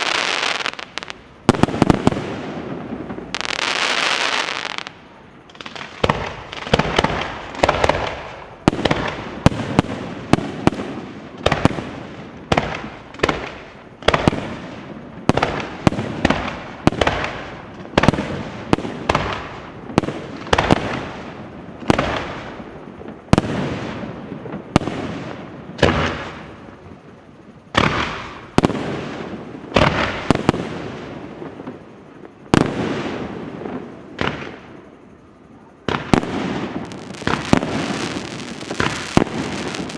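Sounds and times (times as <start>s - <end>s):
firework shells bursting: 35.9s - 39.9s.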